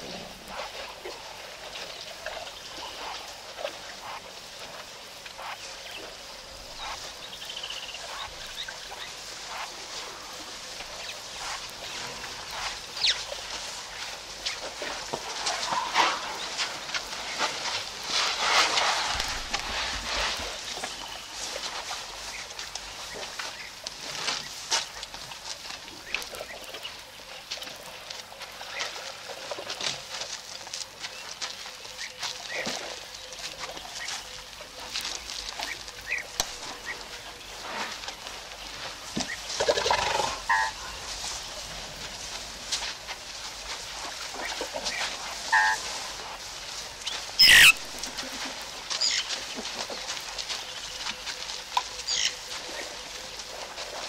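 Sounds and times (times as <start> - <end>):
water splashing and sloshing: 0.0 - 54.0
birds chirping and calling: 44.4 - 45.8, 47.0 - 48.1, 51.9 - 52.5.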